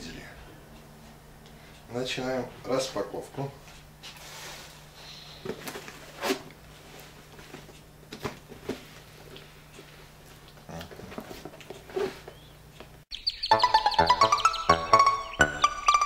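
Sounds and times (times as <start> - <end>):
faint steady hum: 0.0 - 13.0
cardboard and tape scrapes: 4.2 - 4.8.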